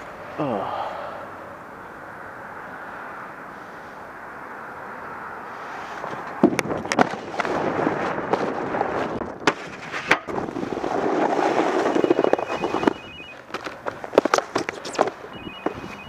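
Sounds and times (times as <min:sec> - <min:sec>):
snowboard knocking and clacking: 0:06.3 - 0:15.8
snowboard scraping over snow: 0:07.0 - 0:12.9.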